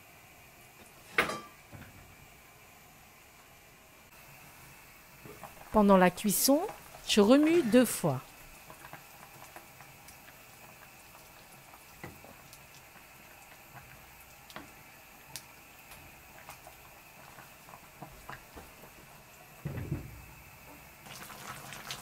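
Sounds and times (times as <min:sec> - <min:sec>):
pot simmering with bubbling pops: 0:00.6 - 0:22.0
low thump: 0:19.6 - 0:20.3.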